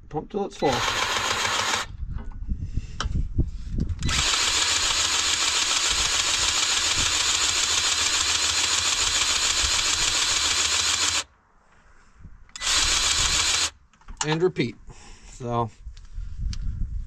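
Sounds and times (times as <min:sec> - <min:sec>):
grease gun motor running: 0:00.6 - 0:01.9, 0:04.0 - 0:11.3, 0:12.6 - 0:13.8.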